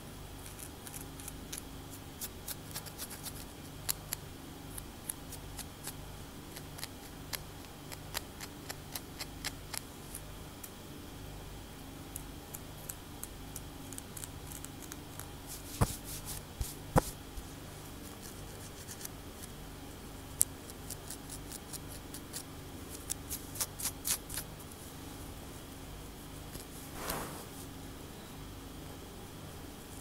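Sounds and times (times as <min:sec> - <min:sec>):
faint low hum: 0:00.0 - 0:30.0
fingernails scratching scalp: 0:26.6 - 0:27.6.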